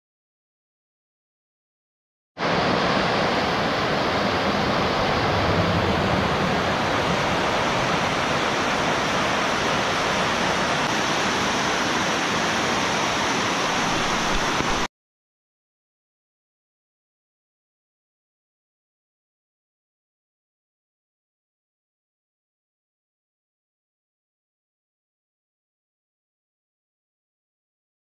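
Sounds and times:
river rapids rushing over rocks: 2.4s - 14.9s.

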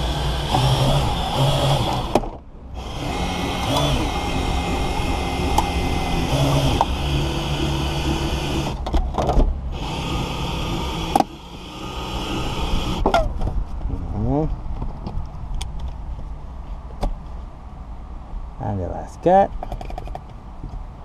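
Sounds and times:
cutting-line winder whirring: 0.0s - 2.2s, 2.8s - 8.8s, 9.7s - 13.0s.

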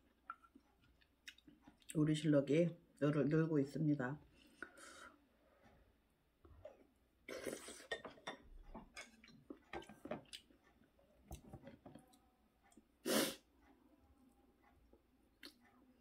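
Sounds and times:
person chewing and slurping: 6.5s - 10.8s.

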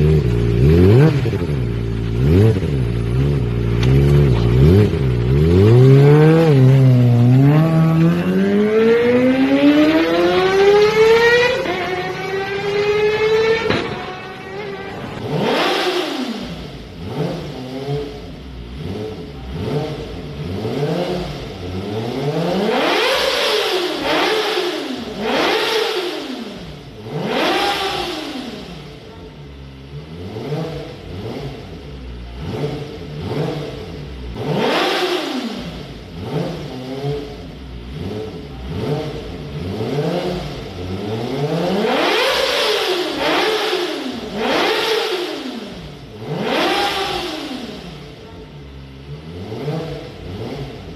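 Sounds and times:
motorcycle engine revving: 0.0s - 50.9s.

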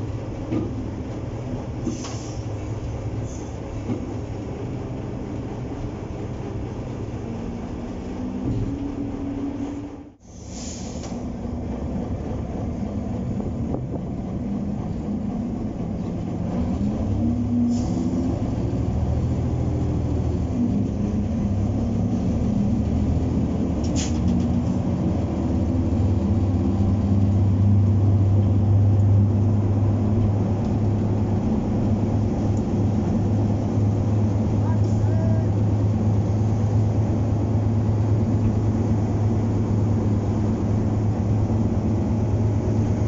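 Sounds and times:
diesel locomotive engine running: 0.0s - 43.0s.

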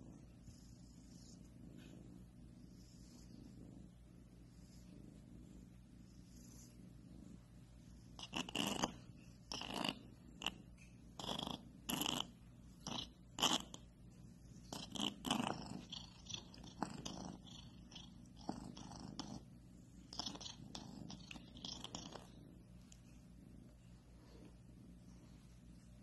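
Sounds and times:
kitten purring: 0.0s - 26.0s.

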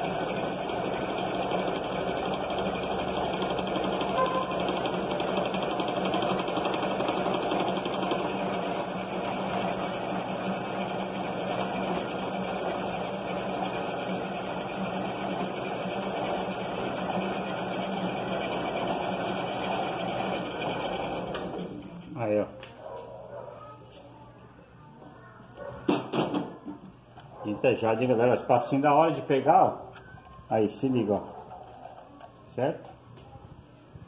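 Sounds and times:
motorized line winder humming: 0.0s - 22.0s.

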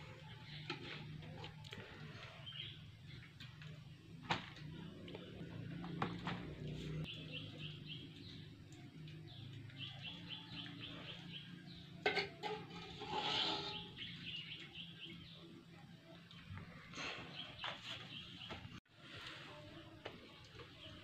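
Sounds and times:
bird chirping: 5.6s - 11.9s, 13.7s - 15.5s.

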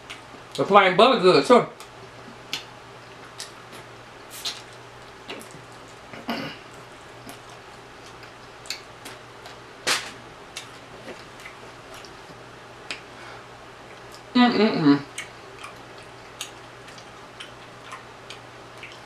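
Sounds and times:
person chewing with wet smacks: 1.8s - 9.6s, 10.5s - 13.1s, 13.8s - 14.3s, 15.1s - 19.0s.

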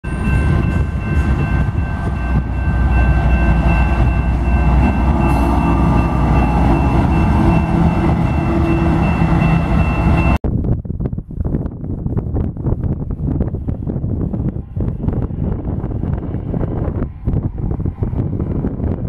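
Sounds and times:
diesel locomotive engine: 0.0s - 10.4s, 12.6s - 19.0s
steady high ringing tone: 0.0s - 10.4s
train wheels rumbling on rail: 0.0s - 10.4s, 11.6s - 19.0s.

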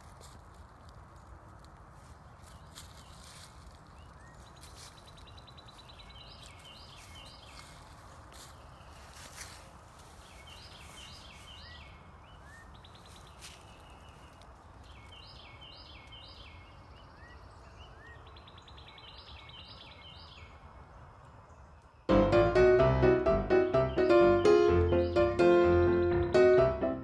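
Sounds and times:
songbird singing: 1.3s - 27.0s
music: 22.1s - 27.0s.

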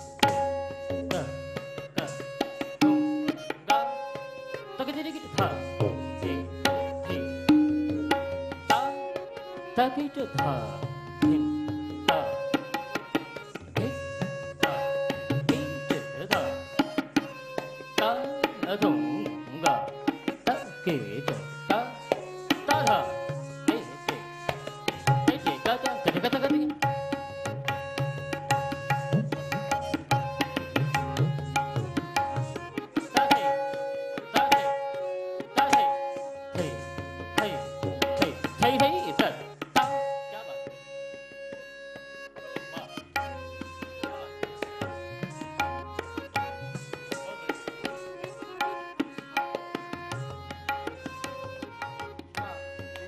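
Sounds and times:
tabla playing: 0.0s - 53.0s.

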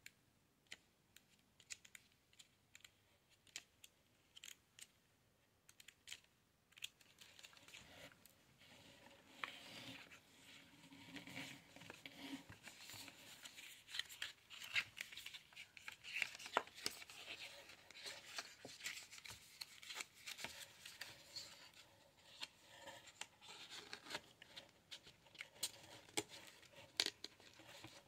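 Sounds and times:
paper and card rustling: 5.8s - 8.2s, 8.8s - 28.0s
paper pages flipping: 11.1s - 28.0s.

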